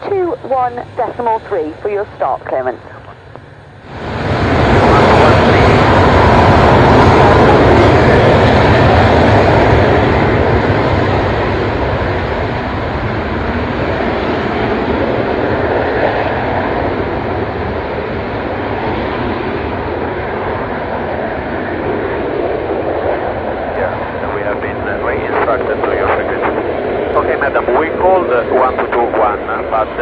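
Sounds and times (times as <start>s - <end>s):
jet engines running: 0.0s - 30.0s.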